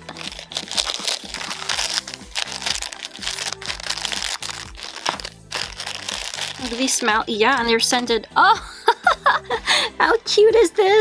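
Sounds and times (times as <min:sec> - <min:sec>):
scissors cutting plastic: 0:00.0 - 0:07.0
plastic packet crinkling: 0:00.0 - 0:07.2
background music with beat: 0:00.0 - 0:11.0.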